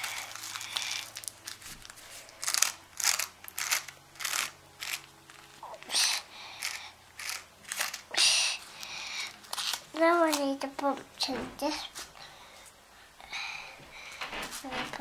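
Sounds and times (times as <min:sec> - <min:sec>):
paper cupcake case crinkling: 0:00.0 - 0:10.6.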